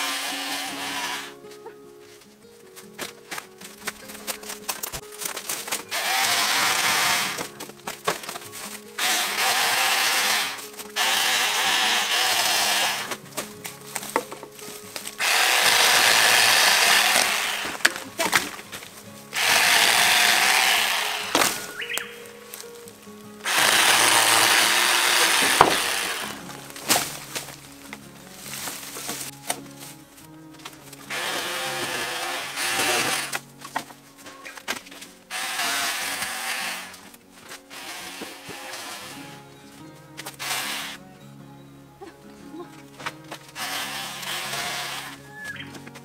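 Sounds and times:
electric chainsaw cutting bamboo: 0.0s - 1.4s, 4.6s - 13.2s, 14.9s - 22.6s, 23.4s - 27.6s, 30.6s - 33.8s, 34.6s - 39.5s, 40.2s - 41.0s, 43.4s - 45.7s.

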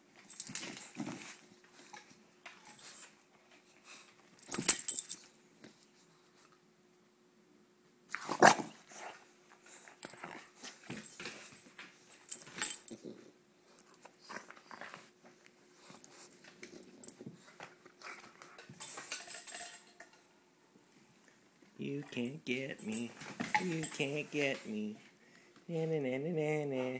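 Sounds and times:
collar tags jingling: 2.6s - 3.2s, 4.4s - 5.3s, 18.8s - 20.2s, 22.0s - 24.8s.

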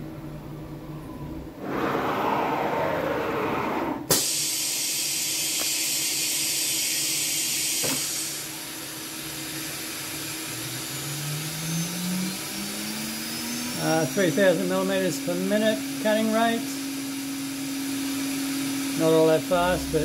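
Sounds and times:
spindle hum rising in pitch: 0.0s - 4.1s, 10.3s - 20.0s
loud high air blast: 3.8s - 8.6s
compressed air hissing: 4.1s - 10.3s.

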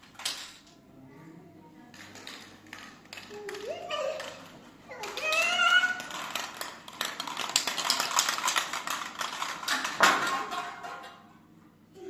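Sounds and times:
small hard objects clattering: 1.9s - 11.2s.

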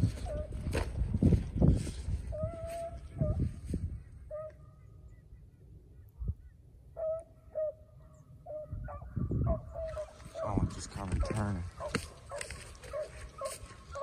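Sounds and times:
wind rumbling on microphone: 0.0s - 5.2s, 6.0s - 6.7s, 8.5s - 14.0s
dogs baying: 2.3s - 3.6s, 4.2s - 4.7s, 6.9s - 14.0s.

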